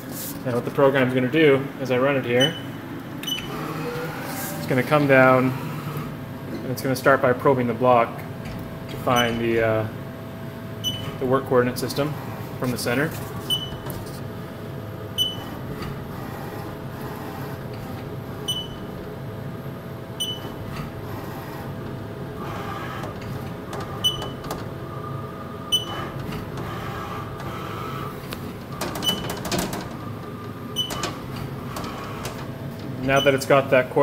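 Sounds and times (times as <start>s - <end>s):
machine hum: 0.0s - 34.0s
axis motors whining: 2.3s - 6.5s, 10.9s - 19.5s, 20.1s - 33.6s.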